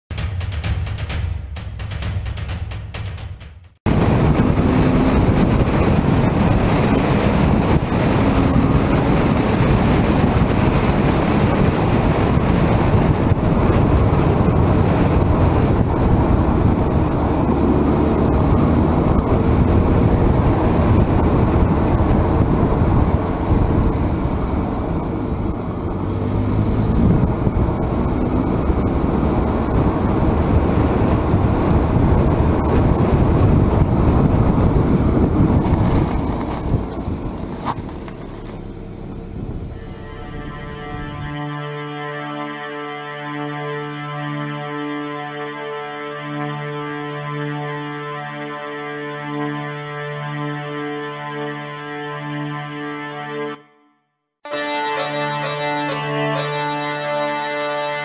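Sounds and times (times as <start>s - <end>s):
wind buffeting microphone: 3.9s - 41.4s
road and engine noise: 3.9s - 42.6s, 54.5s - 58.0s.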